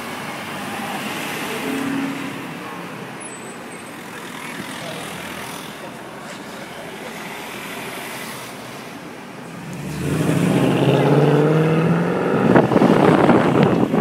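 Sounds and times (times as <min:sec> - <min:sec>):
car engine accelerating hard: 0:09.5 - 0:14.0.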